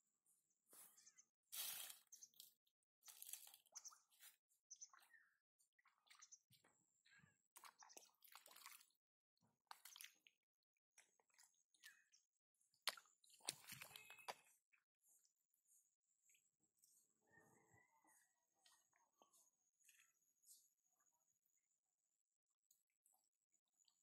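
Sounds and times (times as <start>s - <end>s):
hands sloshing in muddy water: 12.8s - 15.2s.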